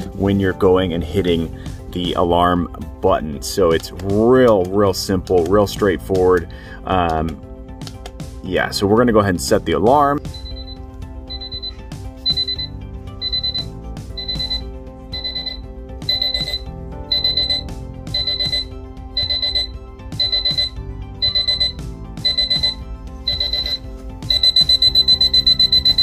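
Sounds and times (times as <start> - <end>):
alarm clock beeping: 10.2 - 26.0.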